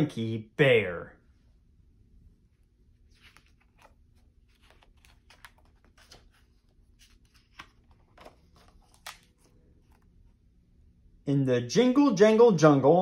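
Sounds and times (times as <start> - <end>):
book pages rustling and turning: 2.7 - 10.5.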